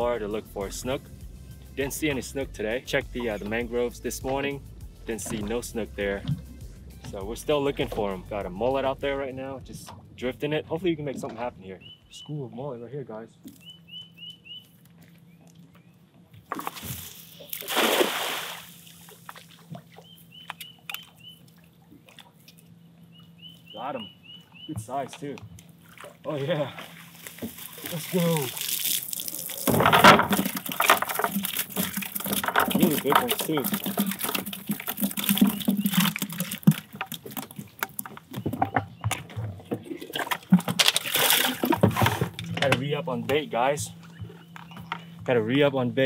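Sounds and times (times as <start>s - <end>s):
water sloshing in bucket: 1.8s - 9.0s, 15.0s - 22.7s, 23.6s - 45.4s
drips and knocks: 5.1s - 8.4s, 11.0s - 11.5s, 26.8s - 45.4s
bird chirps: 11.8s - 12.4s, 13.5s - 16.0s, 20.0s - 21.5s, 22.7s - 25.7s, 43.9s - 45.2s
fish flicking in bucket: 16.5s - 19.8s, 27.0s - 42.6s
net splashing into water: 16.5s - 20.0s, 25.8s - 37.6s, 40.0s - 42.2s.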